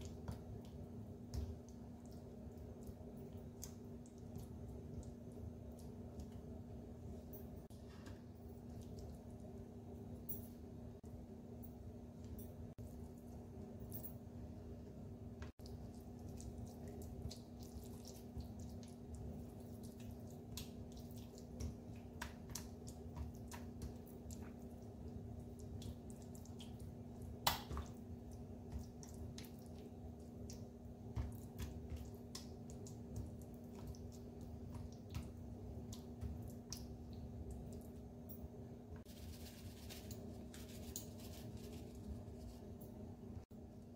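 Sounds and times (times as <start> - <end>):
low steady hum: 0.0 - 43.9
wet squelching of kneading: 15.6 - 38.2.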